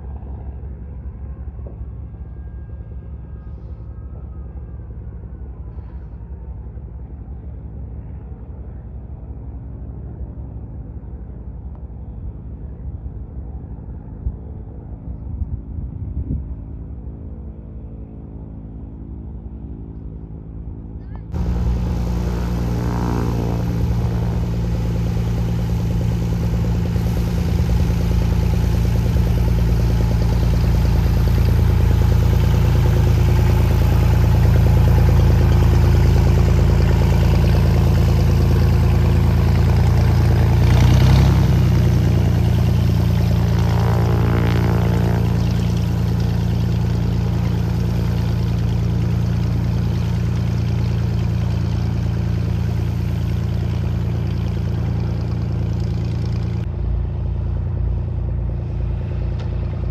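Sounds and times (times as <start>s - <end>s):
propeller plane engine: 0.0s - 59.9s.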